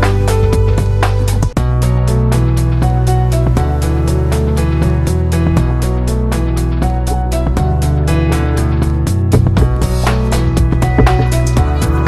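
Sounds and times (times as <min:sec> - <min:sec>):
background music with drum beat: 0:09.1 - 0:12.0.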